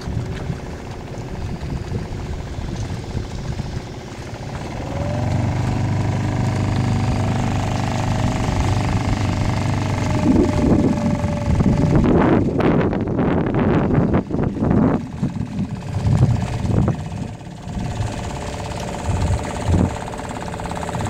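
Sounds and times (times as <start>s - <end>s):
outboard motor running: 0.0s - 21.0s
wind buffeting microphone: 0.0s - 21.0s.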